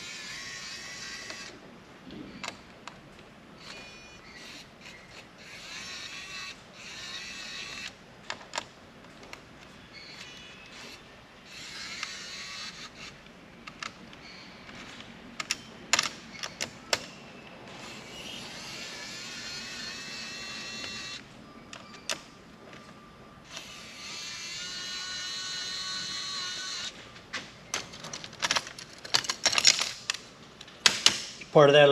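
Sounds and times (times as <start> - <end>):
electric screwdriver whining: 10.7 - 13.2, 17.8 - 21.2.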